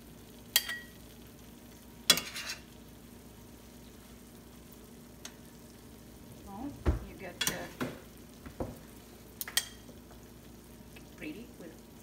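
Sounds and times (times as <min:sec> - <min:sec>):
tongs clinking against pan: 0:00.5 - 0:01.0, 0:02.1 - 0:02.7, 0:09.4 - 0:09.9
metal tongs scraping pan: 0:02.1 - 0:02.7
dull knock: 0:06.8 - 0:07.1, 0:07.8 - 0:08.8.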